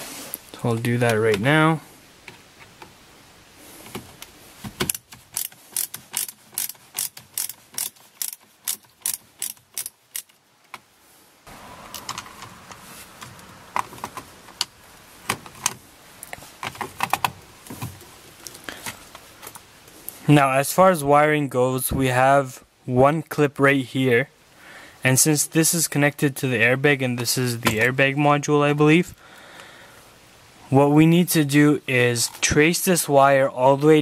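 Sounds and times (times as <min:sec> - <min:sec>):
screwdriver ratchet clicking: 0:04.9 - 0:10.3.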